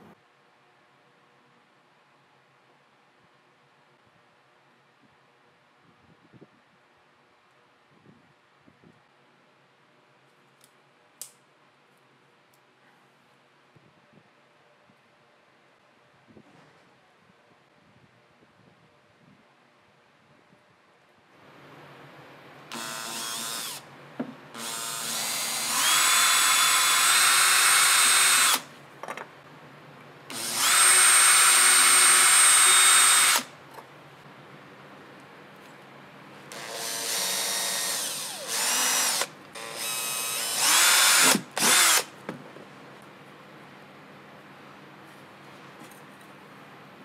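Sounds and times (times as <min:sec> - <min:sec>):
cordless drill whining: 0:22.7 - 0:23.8, 0:24.6 - 0:28.6, 0:30.3 - 0:33.5, 0:36.5 - 0:42.1.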